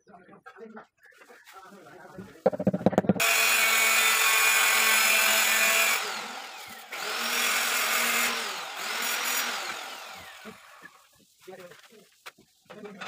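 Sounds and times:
power tool motor running: 3.2 - 10.9.

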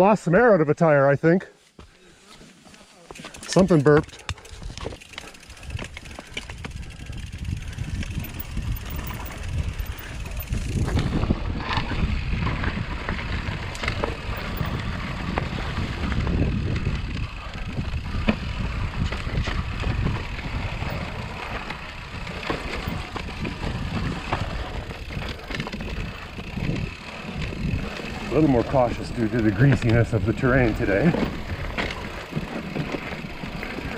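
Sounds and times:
bike tyre rumble on trail: 1.8 - 33.9
bike knocking and rattling: 3.0 - 33.9
wind on microphone: 5.6 - 32.2.

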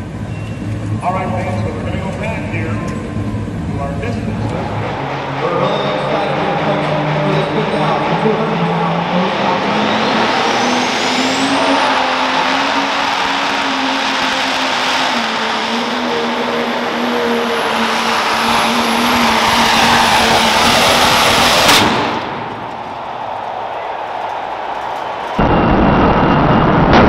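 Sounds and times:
tractor engine at full power: 0.0 - 23.0
sharp bang: 21.6 - 22.8.

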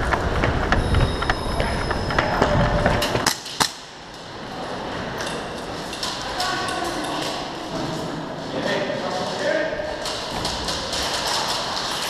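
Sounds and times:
footsteps running: 0.0 - 3.2.

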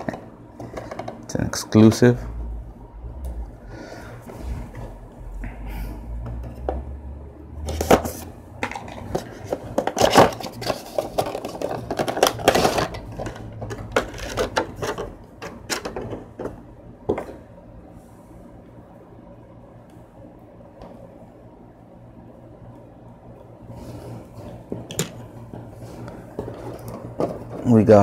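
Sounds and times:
cardboard and plastic packaging crinkling: 9.0 - 15.0.

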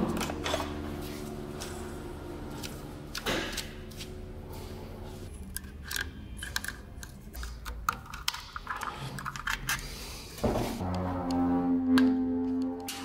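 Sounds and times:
plastic and metal parts clicking: 5.4 - 9.9
music: 10.8 - 13.0.

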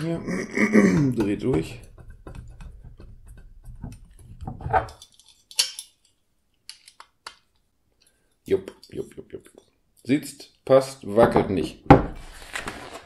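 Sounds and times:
plastic parts clicking and scraping: 1.0 - 7.5.

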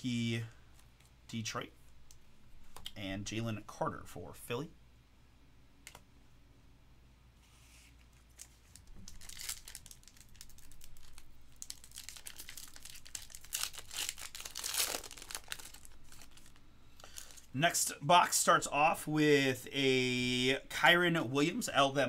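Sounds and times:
foil wrapper tearing and crinkling: 8.3 - 17.5.

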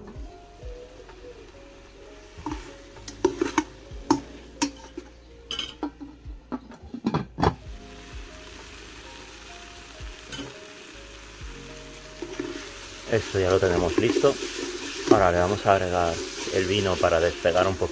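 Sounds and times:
oil sizzling: 0.0 - 6.2, 7.5 - 17.9
faint background music: 0.0 - 17.9
metal spoon scraping a pot: 2.4 - 6.0.

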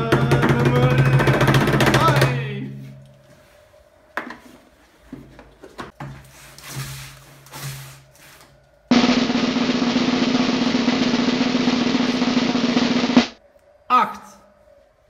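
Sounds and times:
snare drum roll: 0.0 - 2.4, 8.9 - 13.4.

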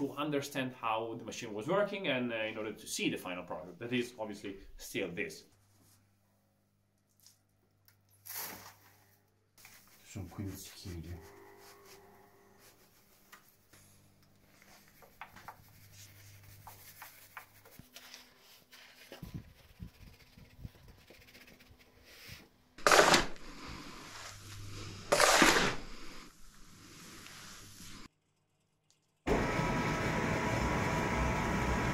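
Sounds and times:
shovel scraping across floor: 8.2 - 10.2, 22.8 - 28.1.

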